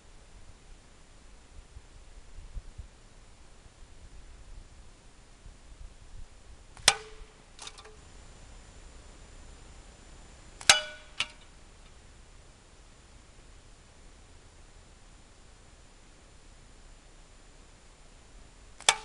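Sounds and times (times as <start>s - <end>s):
metallic clang on a can: 6.8s - 8.0s, 10.6s - 11.5s, 18.8s - 19.0s.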